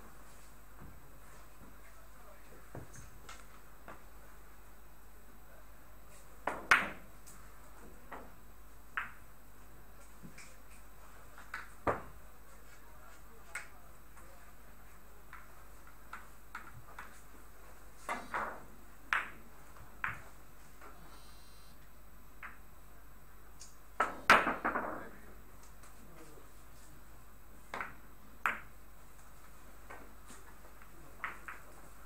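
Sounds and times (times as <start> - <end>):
billiard balls clacking: 15.3 - 17.4, 18.0 - 20.9, 24.0 - 25.2, 27.6 - 32.0.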